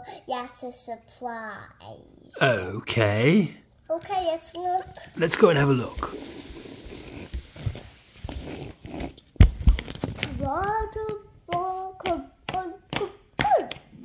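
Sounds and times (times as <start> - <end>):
child singing: 10.3 - 13.3.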